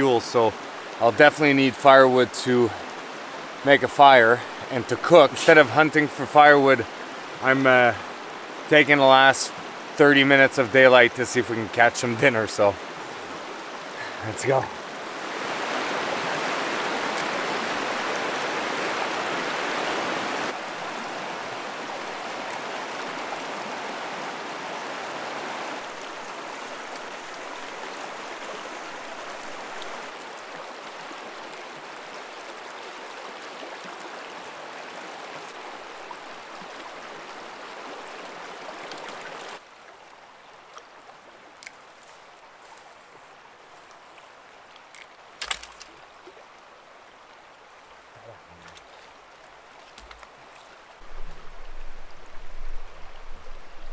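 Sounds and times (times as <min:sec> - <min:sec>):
creek water rushing: 0:00.0 - 0:53.9.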